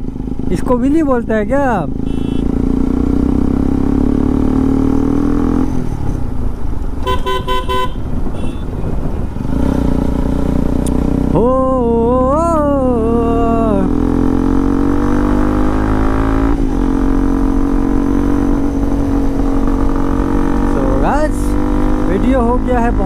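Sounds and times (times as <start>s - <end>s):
motorcycle engine drone: 0.0s - 23.0s
road and wind noise: 0.0s - 23.0s
vehicle horn short toots: 2.0s - 2.5s, 7.0s - 8.8s.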